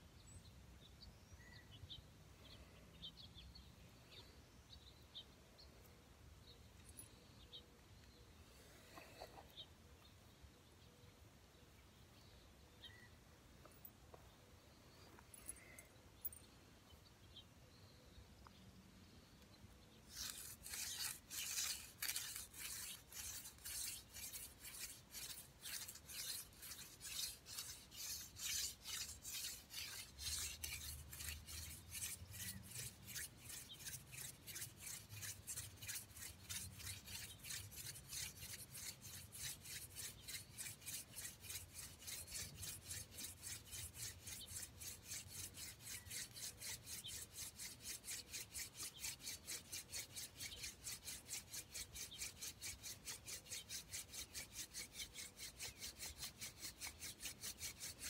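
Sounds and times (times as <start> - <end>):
wooden spindle rasping on wood: 20.1 - 58.0.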